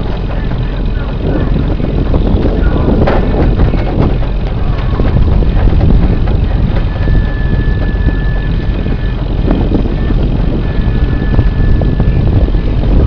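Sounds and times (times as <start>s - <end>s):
boat engine running: 0.0s - 13.0s
thin high whine: 0.0s - 13.0s.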